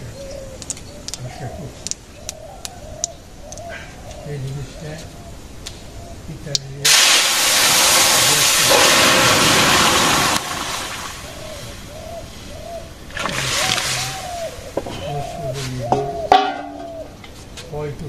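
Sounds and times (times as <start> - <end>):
liquid sizzling in hot pan: 6.8 - 10.6.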